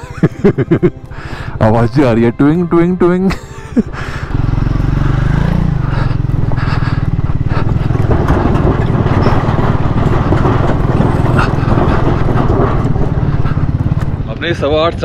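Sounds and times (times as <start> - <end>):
motorcycle engine running: 3.3 - 15.0
wooden planks knocking and clattering: 7.5 - 14.3.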